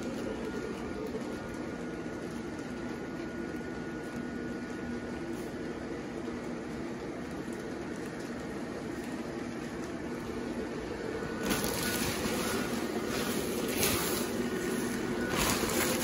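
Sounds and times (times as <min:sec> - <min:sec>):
blower fan humming: 0:00.0 - 0:16.0
fabric rustling and flapping: 0:11.4 - 0:16.0.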